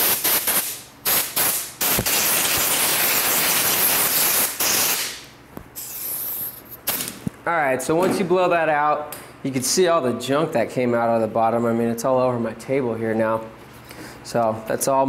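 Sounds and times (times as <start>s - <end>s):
compressed air blow gun hissing: 5.8s - 7.0s.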